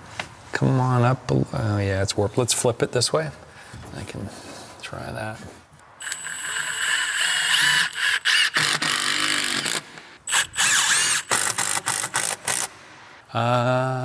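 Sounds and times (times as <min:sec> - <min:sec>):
cordless driver whining: 0:06.0 - 0:13.0.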